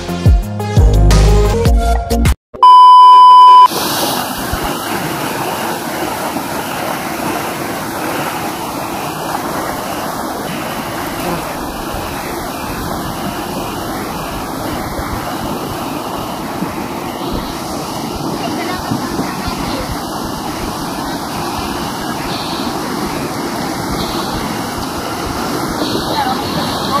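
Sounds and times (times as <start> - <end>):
test-tone beep: 2.6 - 3.7
flooded river rushing: 3.3 - 27.0.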